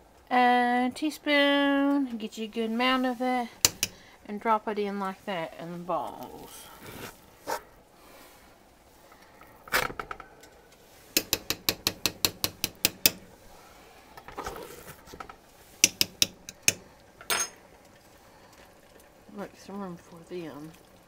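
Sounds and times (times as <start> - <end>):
metal spoon tapping pot rim: 11.2 - 13.2, 15.8 - 16.8.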